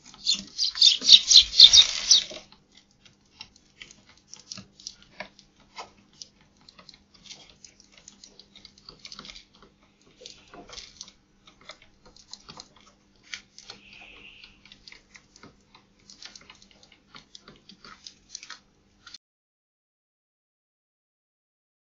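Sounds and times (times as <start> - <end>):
birds pecking clicks: 0.0 - 5.0.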